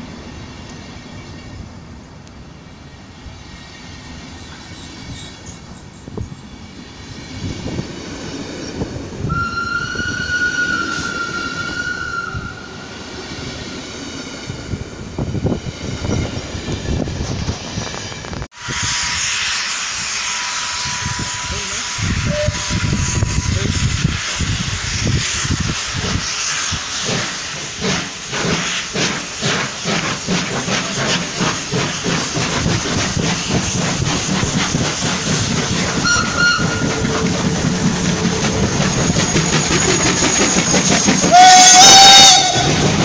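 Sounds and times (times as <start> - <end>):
train wheels rumbling and clattering: 0.0 - 19.3, 19.9 - 43.0
high wheel squeal: 3.5 - 6.7, 8.7 - 13.8, 36.0 - 37.4, 38.2 - 42.9
loud steady hiss: 18.6 - 36.0.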